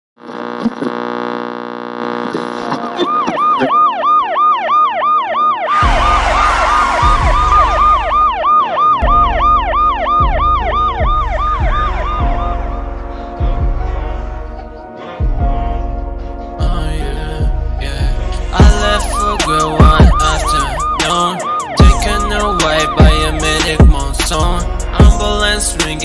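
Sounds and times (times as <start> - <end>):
held musical chords: 2.7 - 26.0
emergency siren yelping: 2.8 - 12.9, 18.8 - 24.3
rush of noise: 5.7 - 8.1
heavy bass beat: 5.7 - 26.0.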